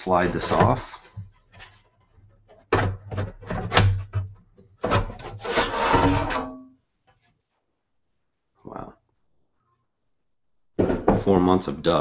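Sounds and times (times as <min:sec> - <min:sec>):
metal casing scraping and rubbing: 0:00.0 - 0:07.3.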